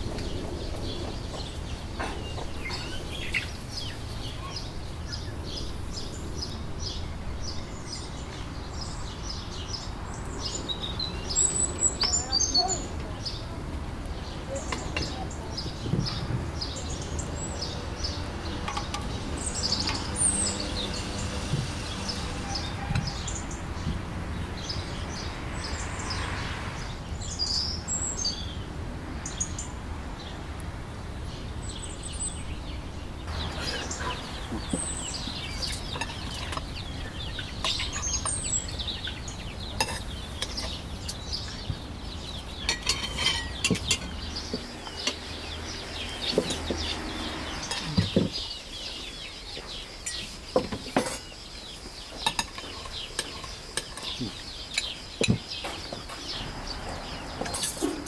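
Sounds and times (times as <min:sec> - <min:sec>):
birds chirping: 0:00.0 - 0:58.0
metal spoon clinking on dishes: 0:42.7 - 0:44.1.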